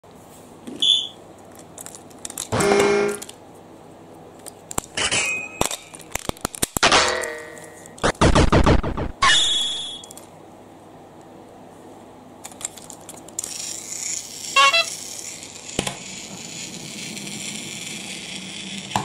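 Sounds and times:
plastic toy parts clicking: 1.5 - 2.5, 5.6 - 6.8, 12.4 - 15.5.

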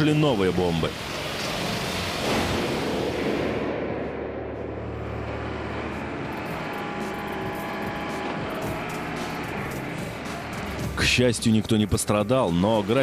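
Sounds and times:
low machinery rumble: 3.1 - 11.0.

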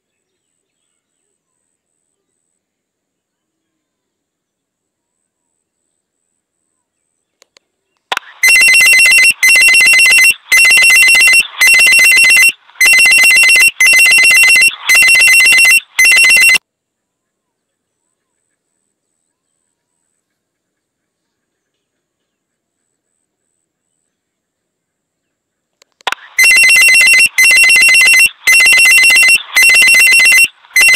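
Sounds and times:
electronic ringing tone: 8.2 - 16.6, 26.1 - 30.9.

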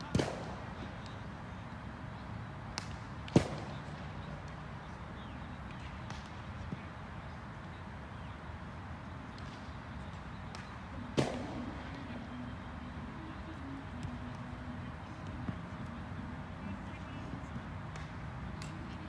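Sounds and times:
sharp crack: 0.0 - 1.2, 2.7 - 4.1, 10.5 - 12.0
steady background noise: 0.0 - 19.0.

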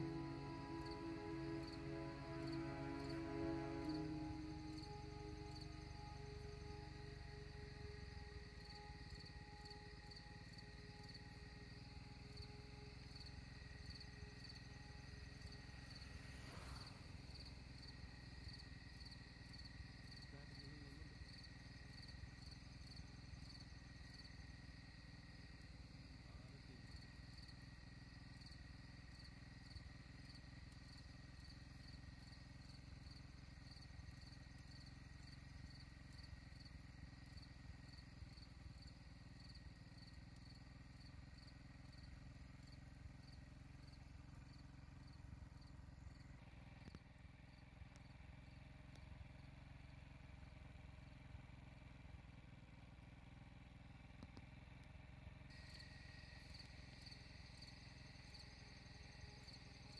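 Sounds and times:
steady thin whine: 0.0 - 21.2
insects chirping: 0.0 - 50.0, 55.5 - 59.9.

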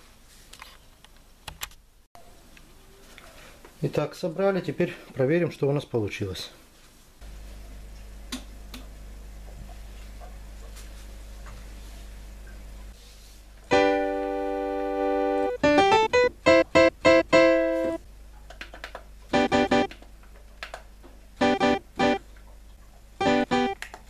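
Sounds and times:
synthesizer notes: 13.7 - 18.0, 19.3 - 19.9, 21.4 - 22.2, 23.2 - 23.8.

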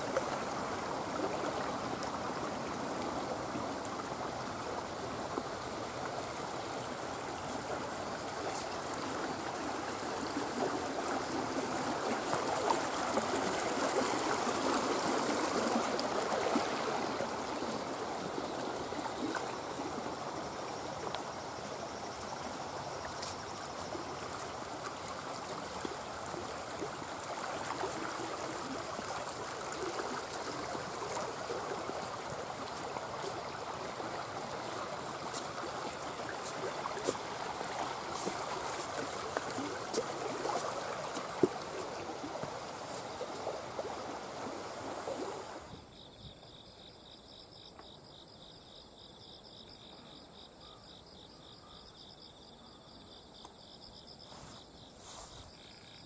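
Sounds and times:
brook running over stones: 0.0 - 45.8.

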